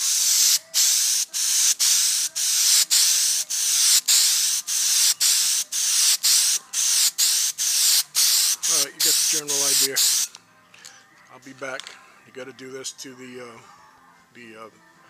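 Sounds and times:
aerosol can spraying: 0:00.0 - 0:10.4.

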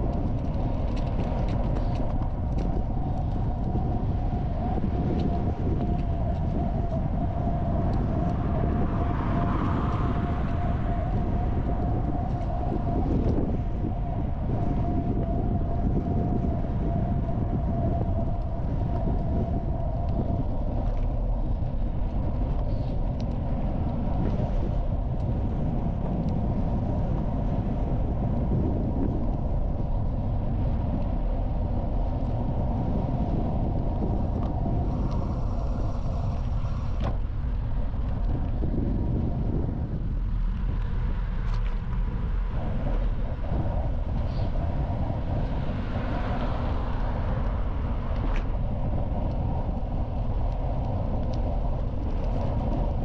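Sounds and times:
tyres rolling on path: 0:00.0 - 0:03.7
wind rushing: 0:00.0 - 0:53.0.

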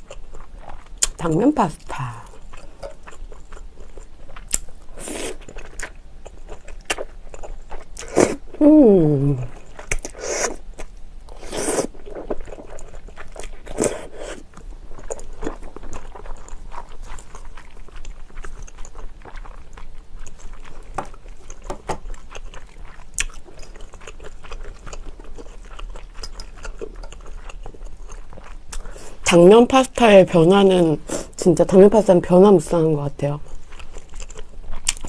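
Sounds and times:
wet chewing with mouth clicks: 0:00.0 - 0:08.7, 0:09.4 - 0:29.0, 0:33.4 - 0:35.0
slurping noodles: 0:11.3 - 0:12.4.

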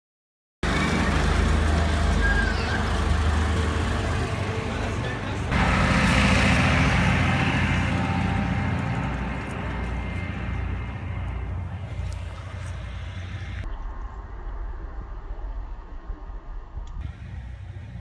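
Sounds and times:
road train engine running: 0:00.6 - 0:13.6, 0:17.0 - 0:18.0.

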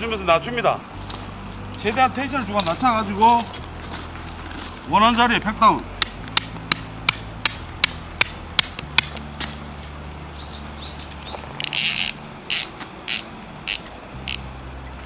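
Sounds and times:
rustling and scraping: 0:00.8 - 0:04.9
hammer striking metal tent peg: 0:06.0 - 0:09.2.

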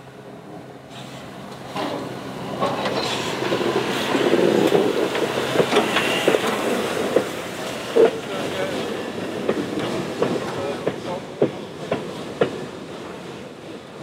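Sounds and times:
steam locomotive passing: 0:00.0 - 0:14.0.

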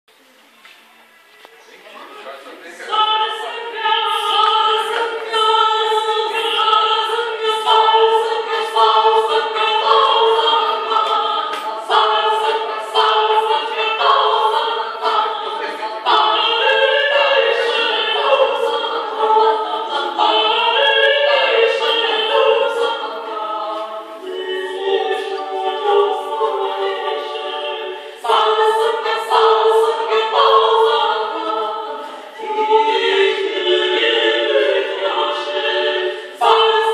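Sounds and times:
women singing in harmony: 0:02.7 - 0:36.9.

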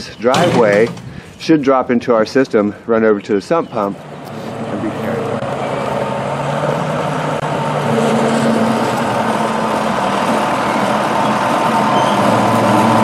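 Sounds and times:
wheel loader diesel engine: 0:02.6 - 0:13.0.

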